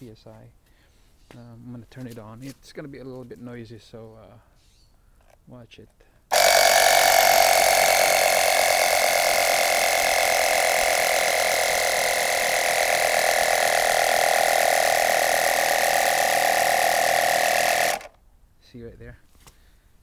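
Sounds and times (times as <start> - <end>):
electric air compressor running: 6.3 - 18.2.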